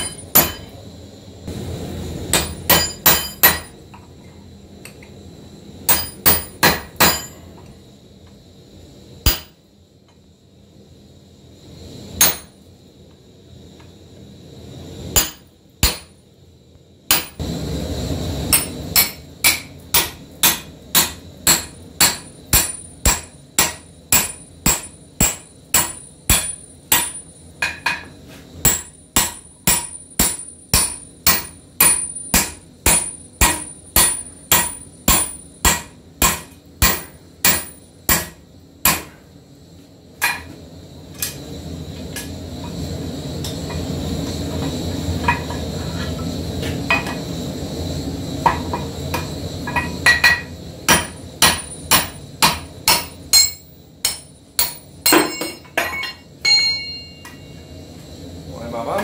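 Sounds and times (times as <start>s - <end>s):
hammer striking steel punch: 0.0s - 0.7s, 2.3s - 3.8s, 5.9s - 7.4s, 9.2s - 9.6s, 12.2s - 12.5s, 15.2s - 16.2s, 17.1s - 17.4s, 18.5s - 39.2s, 48.5s - 57.4s.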